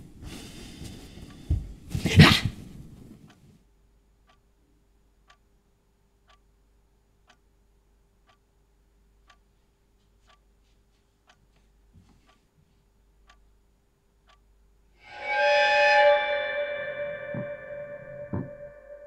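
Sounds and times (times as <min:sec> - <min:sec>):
clock ticking: 0:04.2 - 0:10.6, 0:11.2 - 0:11.6, 0:12.2 - 0:12.4, 0:13.0 - 0:15.4.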